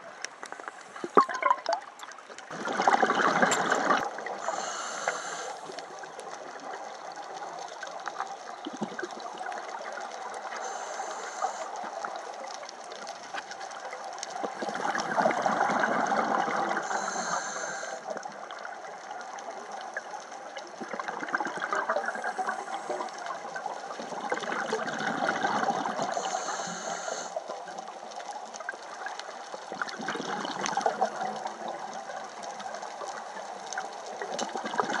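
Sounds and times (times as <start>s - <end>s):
exhaled bubbles rushing: 0.5s - 4.8s, 5.5s - 10.6s, 14.3s - 17.1s, 20.5s - 26.2s, 29.6s - 32.6s, 34.2s - 35.0s
regulator breathing hiss: 4.4s - 5.8s, 10.5s - 11.9s, 16.8s - 18.1s, 22.1s - 23.2s, 26.1s - 27.4s.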